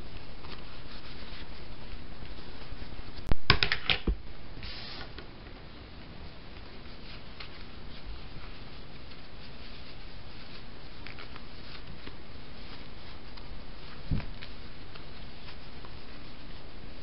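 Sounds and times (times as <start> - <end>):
vinyl rustling and crinkling: 0.0 - 17.0
steady hiss: 4.2 - 17.0.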